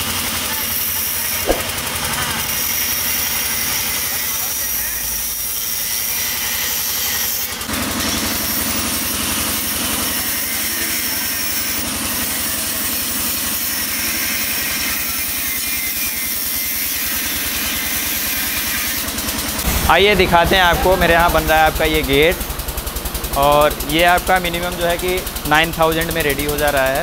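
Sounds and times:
second grinder cutting steel: 0:00.5 - 0:27.0
angle grinder cutting steel: 0:02.5 - 0:22.6.

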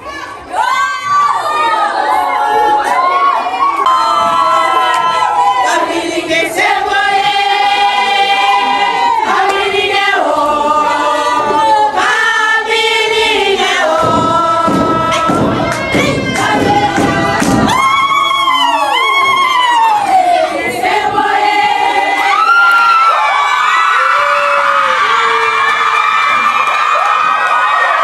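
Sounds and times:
crowd singing long held notes: 0:01.5 - 0:26.6.

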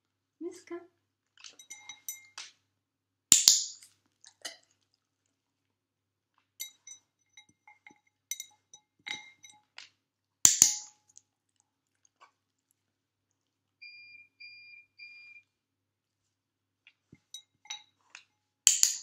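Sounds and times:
glass bowl clinking: 0:01.4 - 0:02.5, 0:06.6 - 0:09.8, 0:17.2 - 0:18.0.

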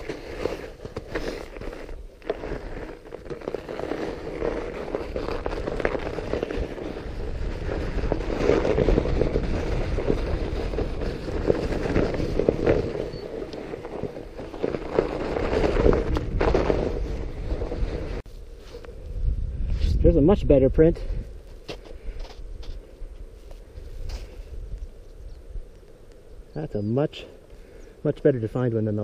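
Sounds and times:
tires crunching frozen snow: 0:00.0 - 0:26.4
wind rumble on microphone: 0:04.3 - 0:21.4, 0:22.0 - 0:26.5.

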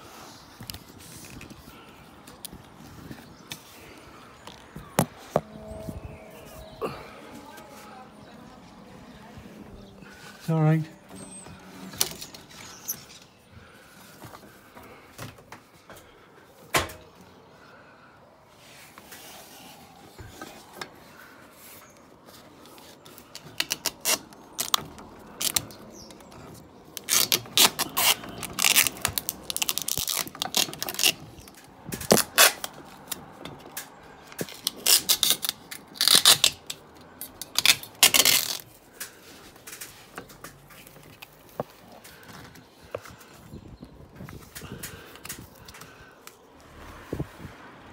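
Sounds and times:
rope handling clicks and scrapes: 0:00.0 - 0:05.5, 0:18.7 - 0:47.3.

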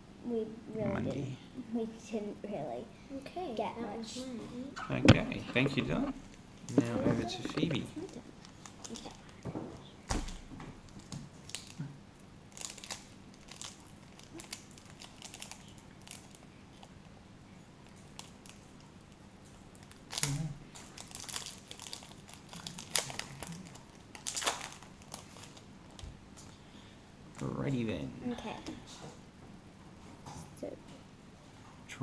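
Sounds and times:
plastic wrapper tearing and crinkling: 0:07.3 - 0:09.5, 0:10.2 - 0:11.8, 0:12.5 - 0:16.9, 0:17.9 - 0:18.8, 0:19.8 - 0:25.7.

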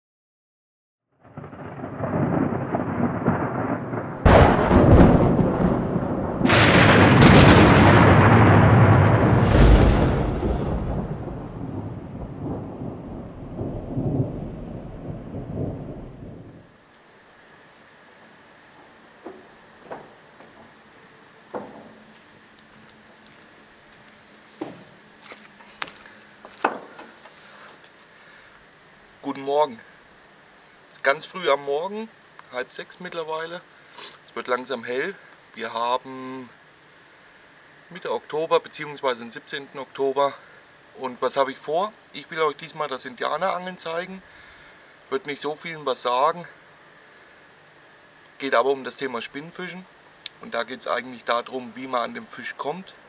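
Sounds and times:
thunder rumbling and cracking: 0:01.2 - 0:16.7
footsteps on wooden planks: 0:18.8 - 0:20.8, 0:21.5 - 0:28.4.

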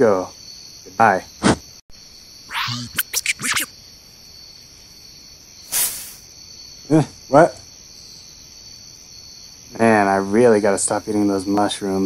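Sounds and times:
crickets chirring: 0:00.0 - 0:12.0
short swish: 0:02.5 - 0:03.7.

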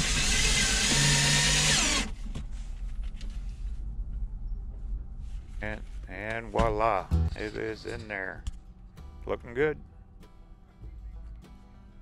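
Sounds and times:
power drill driving screw: 0:00.0 - 0:02.1.

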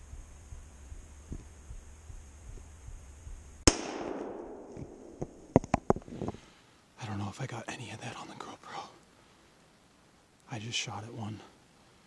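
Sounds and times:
rifle shot echoing: 0:03.6 - 0:05.6.

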